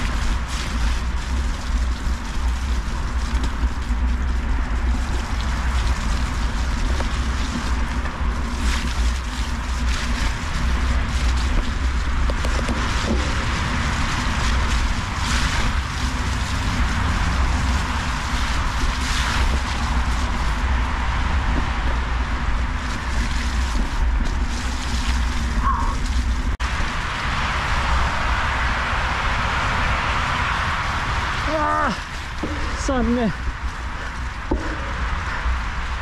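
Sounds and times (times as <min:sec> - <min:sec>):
bike rattles and knocks: 0:00.0 - 0:26.6, 0:31.5 - 0:36.0
bike tyres rolling over mud: 0:00.0 - 0:36.0
wind on microphone: 0:00.0 - 0:36.0.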